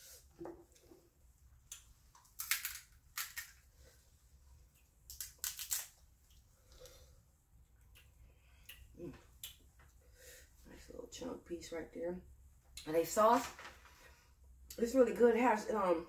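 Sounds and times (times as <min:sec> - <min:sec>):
crab shells cracking: 0:01.7 - 0:03.6, 0:05.1 - 0:06.0.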